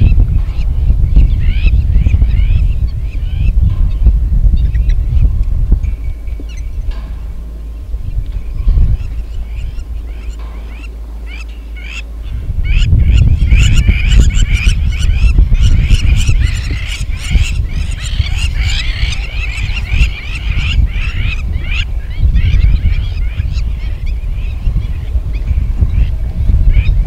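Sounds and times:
heavy low rumble: 0.0 - 27.0
geese honking: 8.4 - 25.1.

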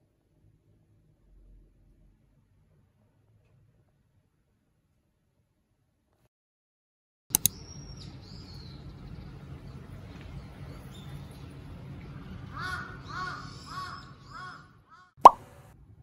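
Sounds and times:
sharp clicks: 7.3 - 7.6
crow cawing: 12.5 - 15.1.

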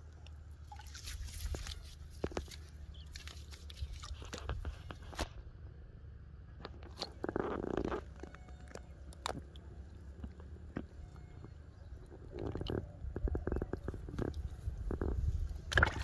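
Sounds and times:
wet clicks and squelches: 0.0 - 5.2, 6.6 - 11.4, 12.0 - 16.0
low steady rumble: 0.0 - 16.0
rustling and scraping: 0.8 - 5.5.

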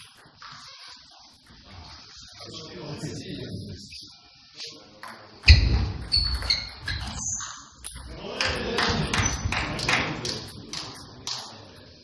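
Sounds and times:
short high squeaks: 6.0 - 7.7.

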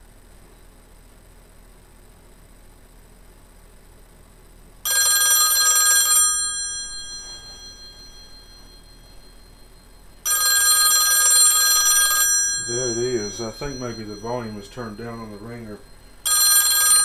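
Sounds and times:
rotary phone bell ringing: 4.8 - 17.0.

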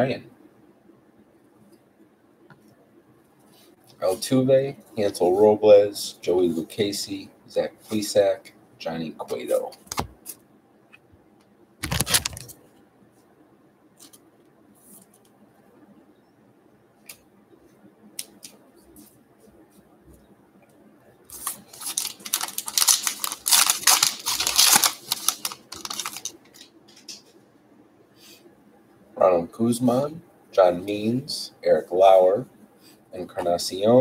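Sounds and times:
wrapper crinkling and tearing: 11.8 - 12.5, 21.3 - 27.2
card pack rustling: 11.8 - 12.6, 21.3 - 27.2.

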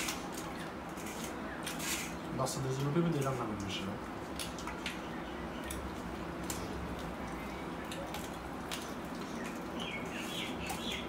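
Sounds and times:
bird chirping: 9.2 - 11.0.

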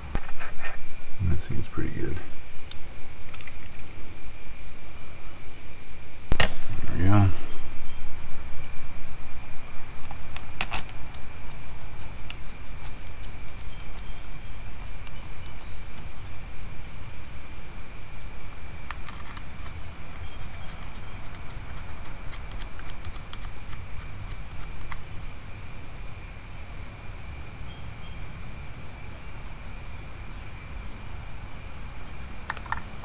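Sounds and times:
small metal parts clicking: 10.4 - 11.2.

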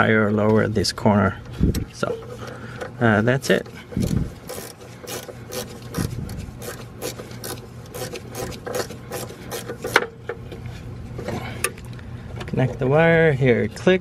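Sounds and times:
ratchet wrench rasping: 3.9 - 10.1.

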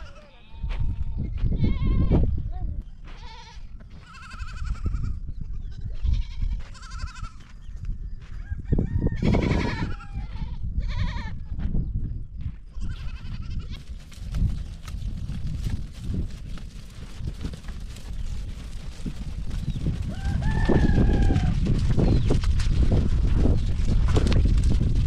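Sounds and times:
goats bleating: 0.0 - 0.8, 3.2 - 5.2, 6.0 - 7.4, 12.8 - 13.8.

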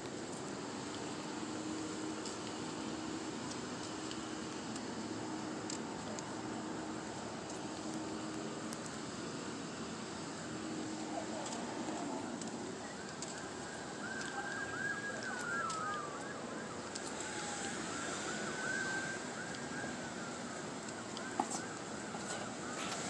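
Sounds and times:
outdoor background noise: 0.0 - 23.0
distant emergency siren: 0.4 - 23.0.

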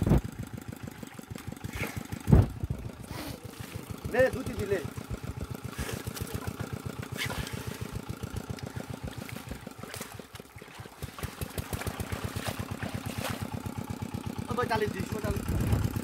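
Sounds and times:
small engine chugging: 0.0 - 16.0
knocks and splashes in wet net: 1.1 - 4.1, 5.0 - 13.9.

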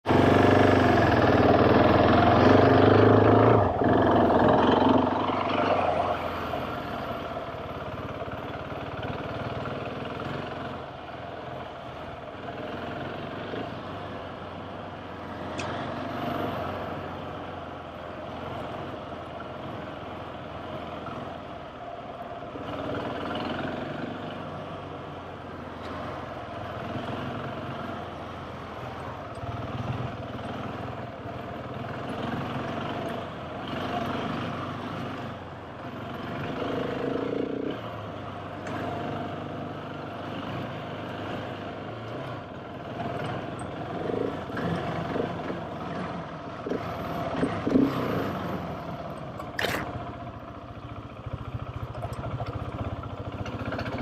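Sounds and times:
motorcycle engine running: 0.0 - 5.7, 26.6 - 54.0.

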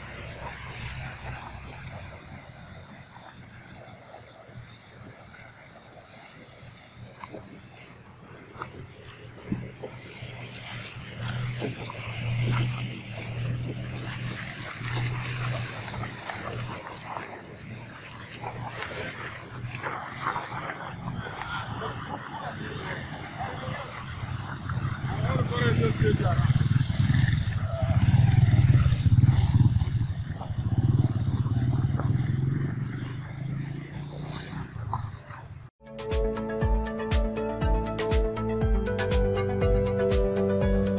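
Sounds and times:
small motorcycle engine: 10.4 - 35.7.

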